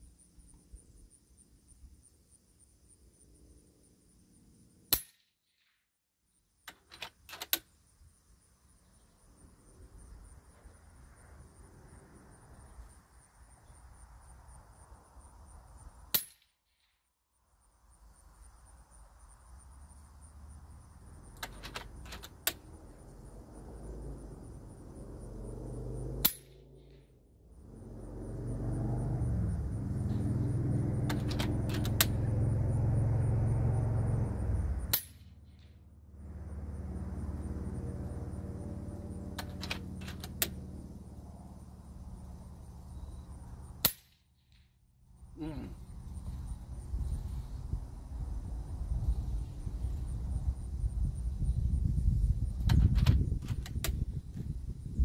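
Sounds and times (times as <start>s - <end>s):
crickets chirping: 0.0s - 5.0s, 6.2s - 55.0s
low rumble: 22.6s - 43.8s.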